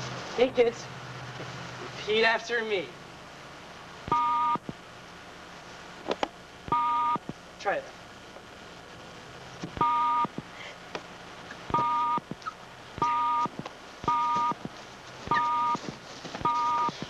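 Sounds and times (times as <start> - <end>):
electronic two-tone beeps: 4.1 - 4.6, 9.8 - 10.3, 11.8 - 12.2, 13.0 - 13.5, 14.1 - 14.6, 15.3 - 15.8.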